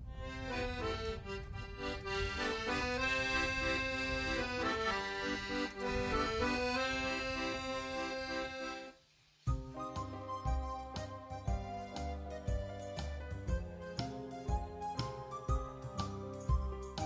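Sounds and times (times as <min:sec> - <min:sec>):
accordion playing a tune: 0:00.0 - 0:17.0.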